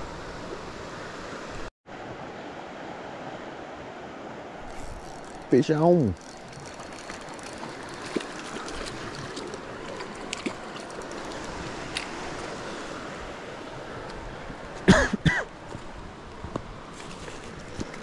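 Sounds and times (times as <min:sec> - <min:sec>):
creek rushing over rocks: 0:04.4 - 0:14.9
small clicks: 0:06.2 - 0:12.5.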